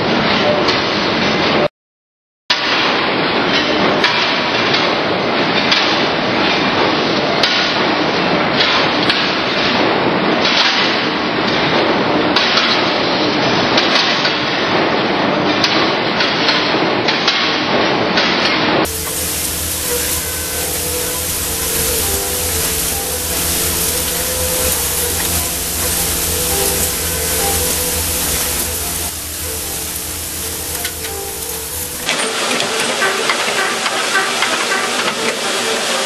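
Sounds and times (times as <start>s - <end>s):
machine hum: 18.9s - 35.8s
lathe running with held tones: 18.9s - 36.0s.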